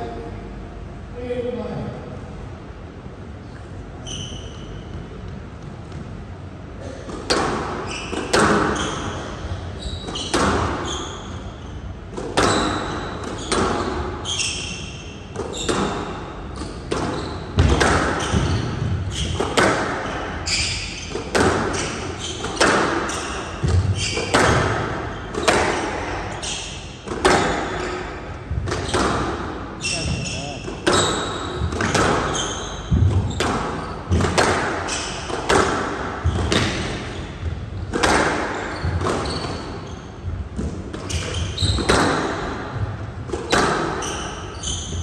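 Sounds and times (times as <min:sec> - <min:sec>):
shoes squeaking on floor: 0:04.0 - 0:05.4, 0:07.3 - 0:45.0
rackets striking squash ball: 0:04.1 - 0:45.0
ball hitting walls: 0:06.8 - 0:09.2, 0:12.1 - 0:14.1, 0:15.3 - 0:44.2.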